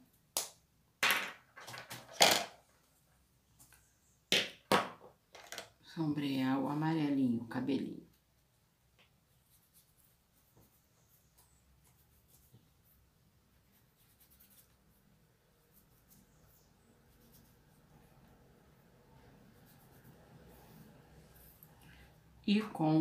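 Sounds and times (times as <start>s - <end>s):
pastel scratching on foam: 9.3s - 15.0s, 15.6s - 17.9s.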